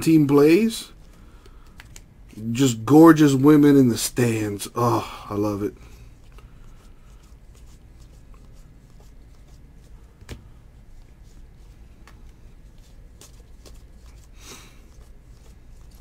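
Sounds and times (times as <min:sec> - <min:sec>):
low room hum: 0:00.0 - 0:16.0
cards sliding and clicking: 0:01.0 - 0:02.1.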